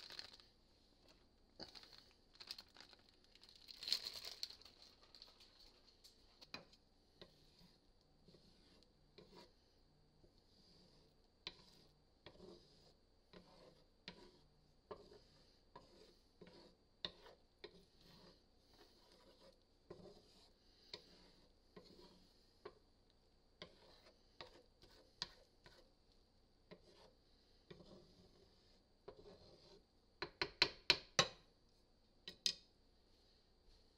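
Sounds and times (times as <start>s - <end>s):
spatula scraping a skillet: 6.0s - 23.0s, 23.6s - 26.0s, 26.6s - 29.9s.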